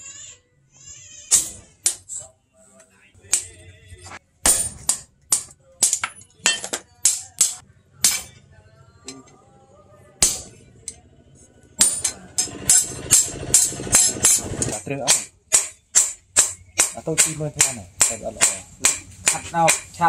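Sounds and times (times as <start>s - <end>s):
hammer striking steel on anvil: 4.4s - 8.4s, 10.2s - 10.6s, 11.8s - 20.0s.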